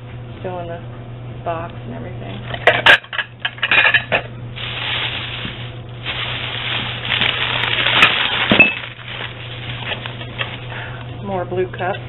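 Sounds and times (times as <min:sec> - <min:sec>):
plastic bag and paper rustling: 0:04.6 - 0:10.9
glass clinking: 0:08.0 - 0:08.9.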